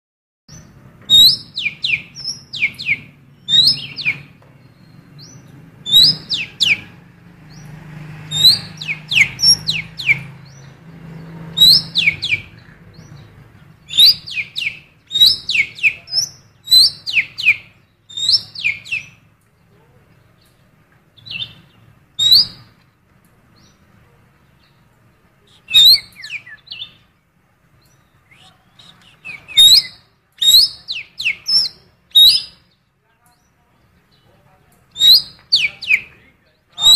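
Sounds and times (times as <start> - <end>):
bird calling in sharp notes: 0.6 - 7.0, 8.3 - 10.7, 11.5 - 13.2, 13.9 - 19.2, 28.2 - 32.8, 34.9 - 36.2.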